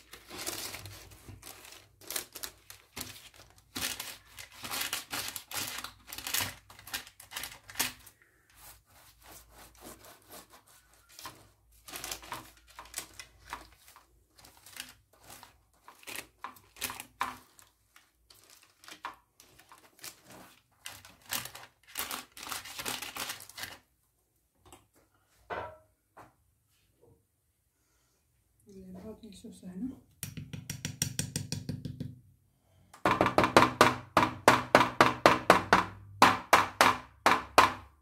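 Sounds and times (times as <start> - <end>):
baking paper rustling: 0.0 - 23.9.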